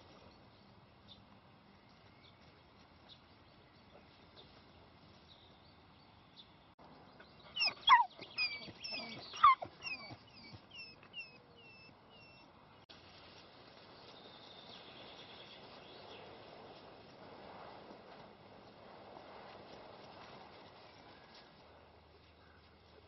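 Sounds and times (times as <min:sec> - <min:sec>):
faint birdsong: 0:00.0 - 0:12.9, 0:20.9 - 0:23.0
puppy yelping: 0:07.6 - 0:12.5.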